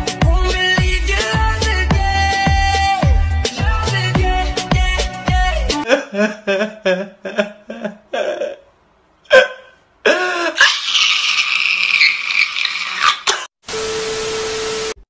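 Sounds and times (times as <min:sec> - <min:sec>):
man sobbing and wailing: 0:05.6 - 0:11.0.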